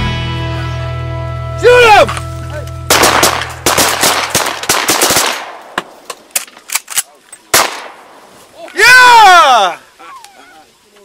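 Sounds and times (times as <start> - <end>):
shotgun shots: 2.9 - 6.9, 7.5 - 8.3.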